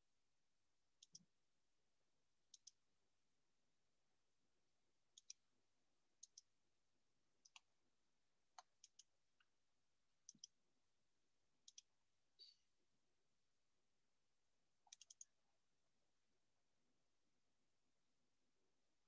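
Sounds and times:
computer mouse clicks: 1.0 - 1.2, 2.5 - 2.8, 5.2 - 5.4, 6.2 - 6.5, 7.4 - 7.7, 8.6 - 9.5, 10.2 - 10.6, 11.6 - 12.5, 14.8 - 15.4.

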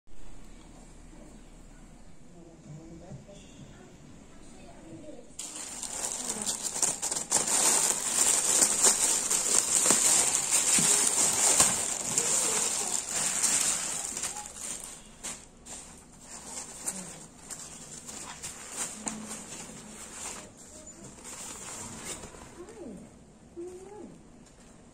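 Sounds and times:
plastic bag crinkling and tearing: 5.4 - 20.6
fabric rustling: 5.4 - 22.6.

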